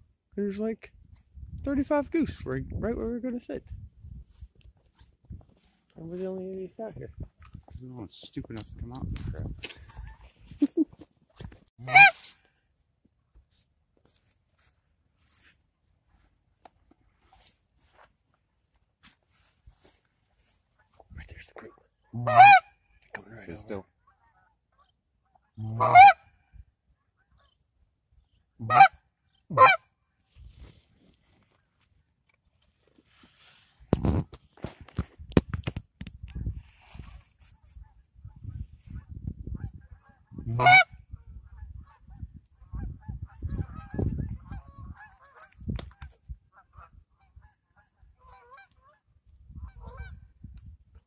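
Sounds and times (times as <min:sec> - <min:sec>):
geese honking: 0:11.8 - 0:12.4, 0:22.1 - 0:22.8, 0:24.0 - 0:26.3, 0:28.6 - 0:29.8, 0:39.6 - 0:45.5, 0:46.5 - 0:50.2
goose call honks: 0:11.8 - 0:12.4, 0:22.1 - 0:22.8, 0:24.0 - 0:26.3, 0:28.6 - 0:29.9, 0:39.6 - 0:42.0.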